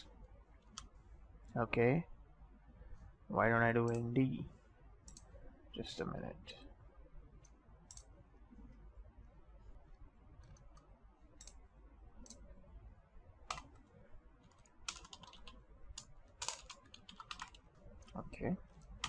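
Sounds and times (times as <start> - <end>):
computer mouse clicks: 5.0 - 5.3, 7.4 - 8.1, 10.4 - 11.6, 12.2 - 12.4.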